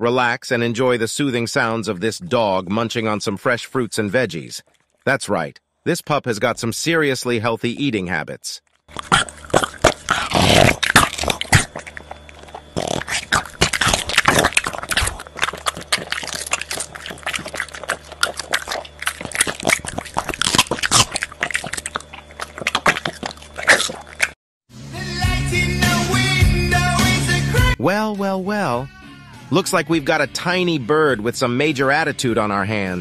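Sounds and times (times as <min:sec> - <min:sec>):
dog crunching and chewing vegetables: 0:08.8 - 0:24.4.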